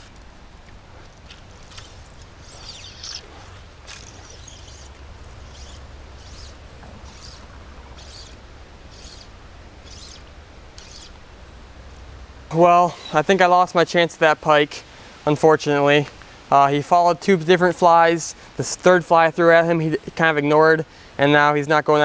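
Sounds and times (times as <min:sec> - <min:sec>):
steady low rumble: 0:00.0 - 0:13.8
fly line zipping through guides: 0:01.4 - 0:11.2.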